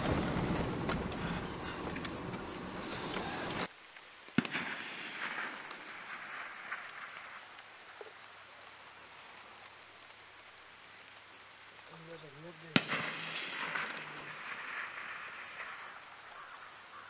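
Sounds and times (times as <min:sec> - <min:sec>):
steady rushing noise: 0:00.0 - 0:03.7
distant gunshot echoing: 0:04.4 - 0:06.8, 0:12.7 - 0:15.9.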